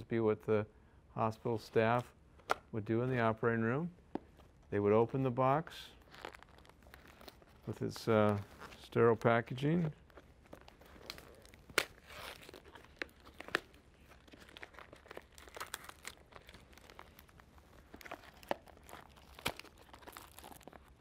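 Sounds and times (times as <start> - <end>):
plastic wrap crinkling and tearing: 5.8 - 21.0.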